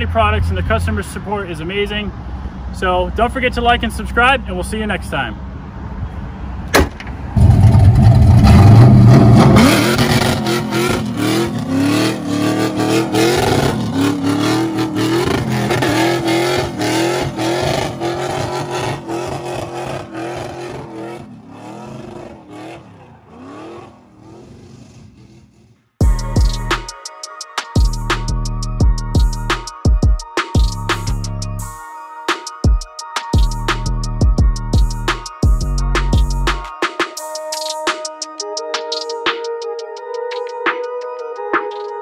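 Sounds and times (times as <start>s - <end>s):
engine stuttering on rev limiter: 7.4s - 25.9s.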